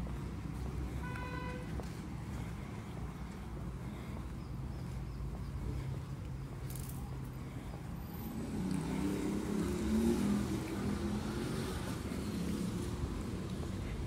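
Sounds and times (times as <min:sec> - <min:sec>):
low rumble of city traffic: 0:00.0 - 0:14.0
car passing: 0:04.9 - 0:14.0.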